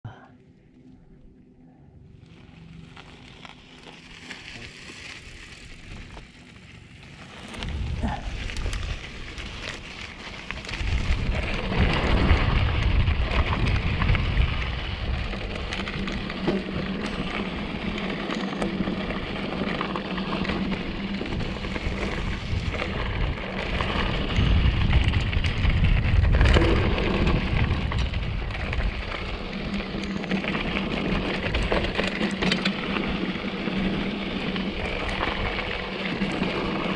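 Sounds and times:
low rumble: 0.0 - 32.1
bike rattling: 2.0 - 36.9
tyres on gravel and rock: 2.0 - 36.9.

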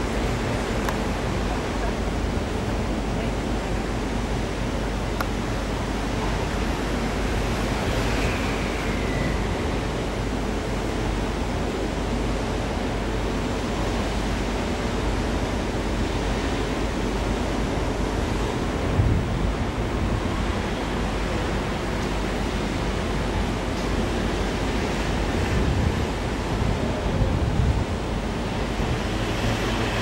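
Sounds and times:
wind rushing on microphone: 0.0 - 30.0
faint falling squeal: 8.0 - 9.8.

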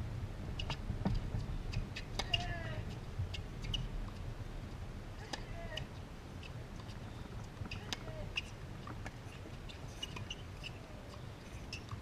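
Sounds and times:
low background rumble: 0.0 - 12.0
shoes squeaking on court: 3.3 - 3.9, 5.4 - 12.0.

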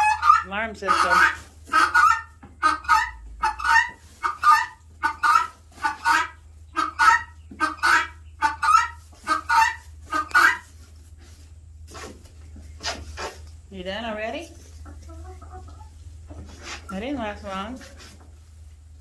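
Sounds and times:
guineafowl alarm calls: 0.0 - 10.7.

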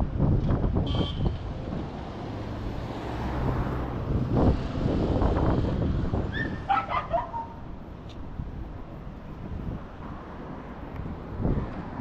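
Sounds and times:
street traffic: 0.0 - 12.0
vehicle passing: 1.6 - 8.0
short high yelps: 6.3 - 7.6.

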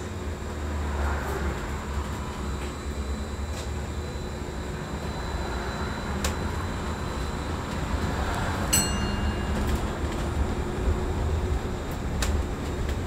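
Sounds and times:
bus cabin rumble: 0.0 - 13.0
faint high whine: 8.8 - 11.8.

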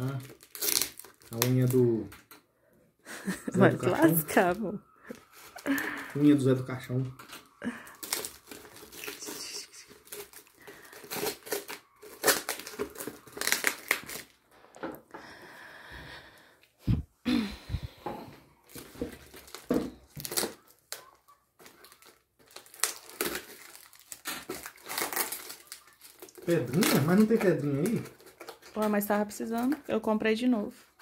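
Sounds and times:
packaging crinkling and ripping: 0.0 - 2.4, 3.8 - 14.8, 18.6 - 29.9.

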